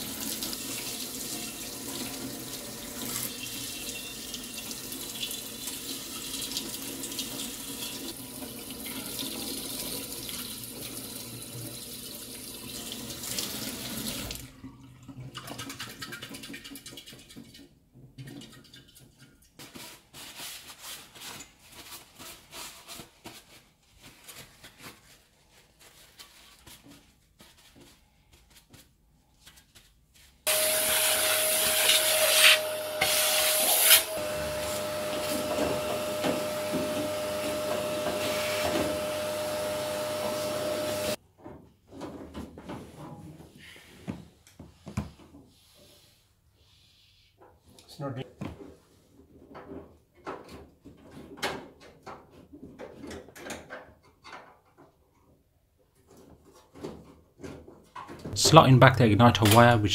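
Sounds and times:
paper towel rustling: 19.6s - 30.4s.

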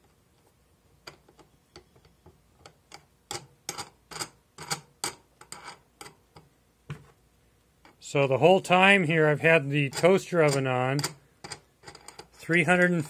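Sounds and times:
wing nuts clicking on metal studs: 9.8s - 12.5s.

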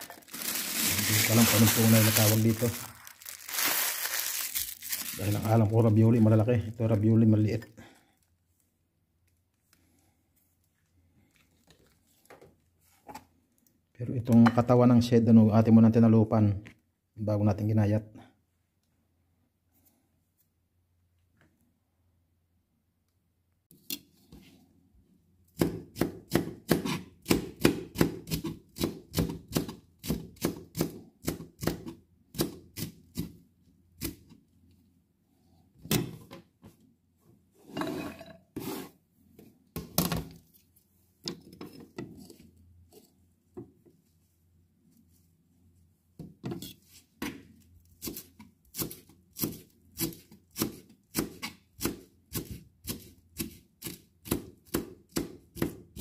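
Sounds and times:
knife chopping on plastic board: 25.6s - 33.4s, 48.0s - 56.0s
knife scraping cutting board: 26.7s - 27.1s, 37.6s - 39.0s.

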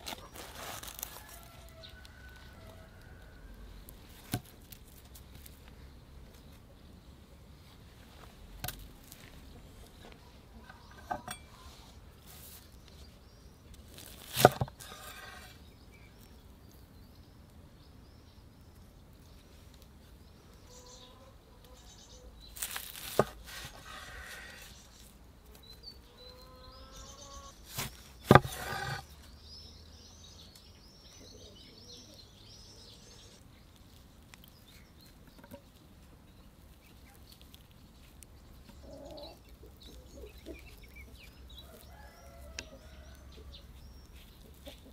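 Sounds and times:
faint birds calling: 9.1s - 44.9s.

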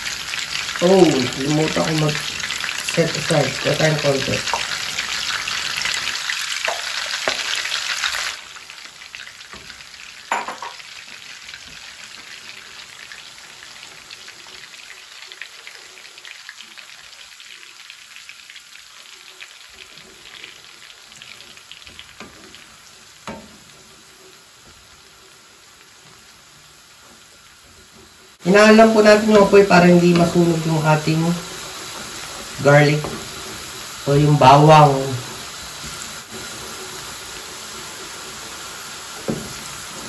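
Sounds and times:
garlic sizzling in butter: 0.0s - 40.0s
wooden spoon knocking pan: 9.5s - 10.9s, 23.2s - 23.7s, 39.2s - 39.6s.

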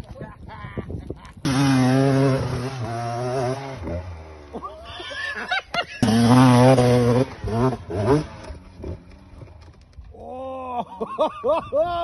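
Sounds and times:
dirt bike engine revving: 1.4s - 4.7s, 6.0s - 9.8s
second dirt bike revving loudly: 1.4s - 4.7s, 6.0s - 9.5s.

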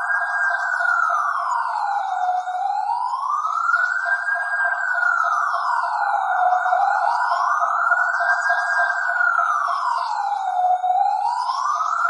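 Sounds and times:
police siren wailing: 0.0s - 12.0s.

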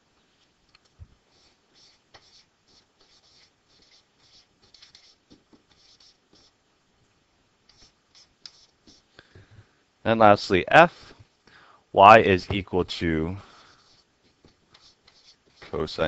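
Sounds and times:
stylus scratching on tablet: 1.3s - 6.6s, 7.7s - 9.1s, 13.5s - 16.0s.

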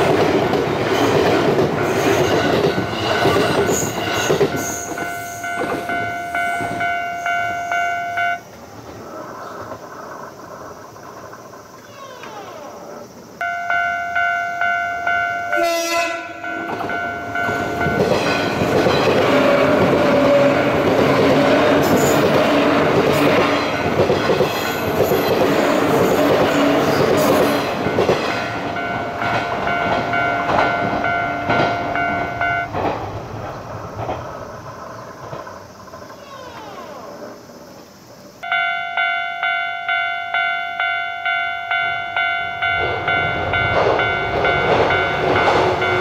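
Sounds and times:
rail-joint clatter: 0.0s - 12.4s, 13.1s - 36.6s, 41.7s - 46.0s
electric train passing: 0.0s - 46.0s
level-crossing alarm ringing: 0.8s - 8.6s, 13.4s - 32.8s, 38.4s - 46.0s
train horn blast: 15.5s - 16.8s, 18.2s - 23.8s, 25.4s - 28.4s.

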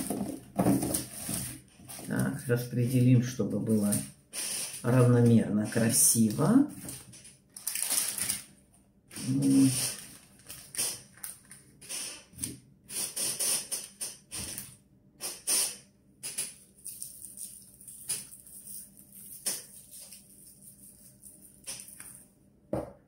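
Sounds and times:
vegetables rustling on parchment paper: 0.0s - 4.1s, 4.8s - 8.5s, 9.1s - 11.7s.

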